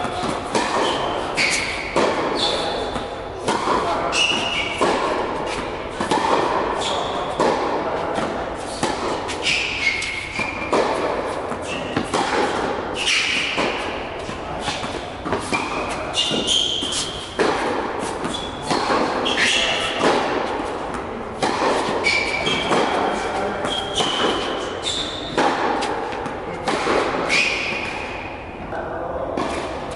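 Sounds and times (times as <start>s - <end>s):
tennis ball hits: 0.0s - 24.6s, 25.2s - 28.0s
tennis ball bouncing on court: 0.0s - 28.0s, 29.4s - 29.9s
shoes squeaking on court: 0.1s - 3.0s, 6.8s - 7.5s, 8.6s - 12.2s, 13.0s - 20.8s, 21.5s - 28.3s.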